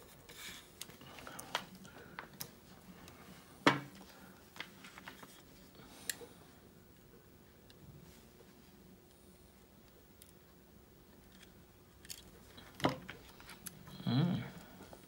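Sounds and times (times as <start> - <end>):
small plastic parts clicking: 11.2 - 12.3.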